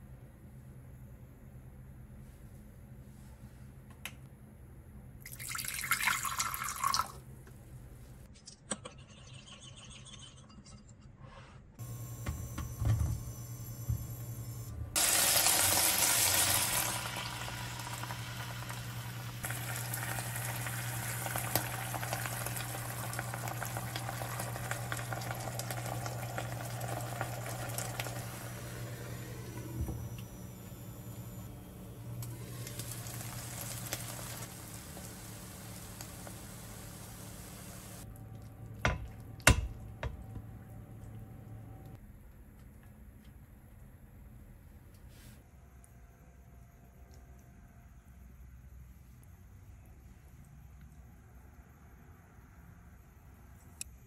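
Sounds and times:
water pouring into a bowl: 5.3 - 7.2, 15.0 - 28.4
sauce hissing in a hot pan: 15.0 - 29.1, 32.4 - 38.0.

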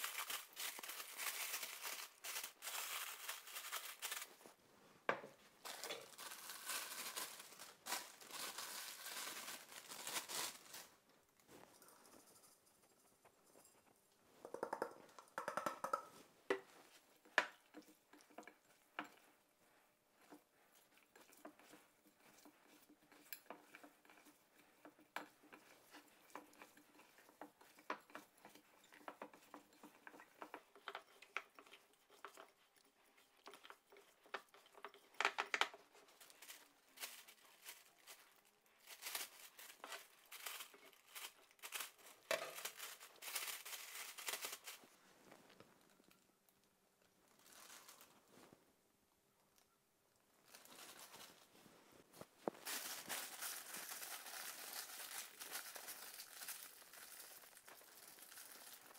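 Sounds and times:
spice mix pouring: 0.0 - 4.4, 5.6 - 11.0, 39.2 - 44.7, 52.6 - 58.9
plastic food bag crinkling: 0.0 - 4.6, 5.3 - 12.6, 34.3 - 46.6, 47.2 - 48.6, 50.4 - 58.9
meat tapping against glass bowl: 14.4 - 16.1.

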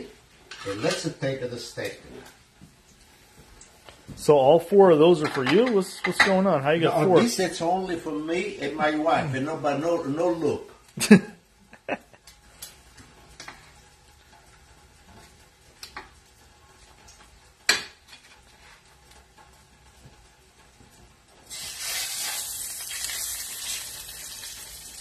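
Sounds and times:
steak sizzling in oil: 21.4 - 25.0.

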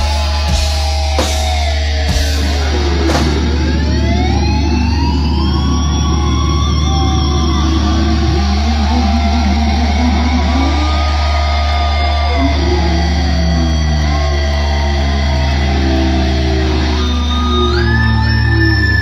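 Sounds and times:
death metal band playing live: 0.0 - 4.2.

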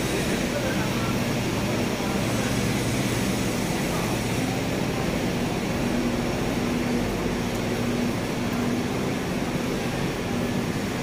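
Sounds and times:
train mechanical drone and hiss: 0.0 - 11.0.

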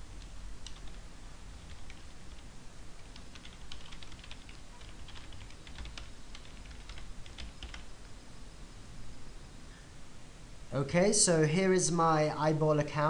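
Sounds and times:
low steady hum: 0.0 - 13.0
computer keyboard typing: 0.2 - 1.0, 1.6 - 2.4, 3.0 - 7.9.

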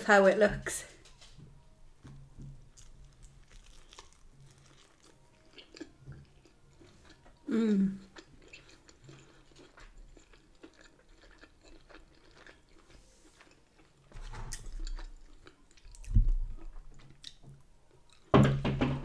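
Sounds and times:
close chewing mouth sounds: 2.8 - 17.4.

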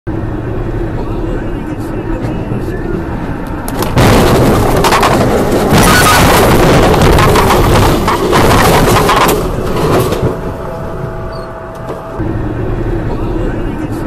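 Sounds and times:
truck crashing metal impacts: 3.7 - 10.6.

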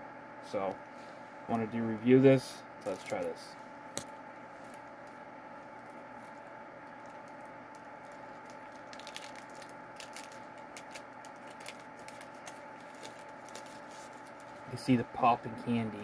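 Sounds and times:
steady low hum: 0.0 - 16.0
wrapper crinkling: 2.8 - 3.4, 5.8 - 14.7.

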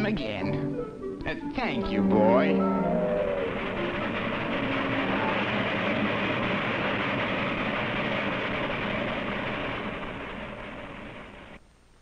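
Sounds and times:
toy train rolling clatter: 2.6 - 11.6.

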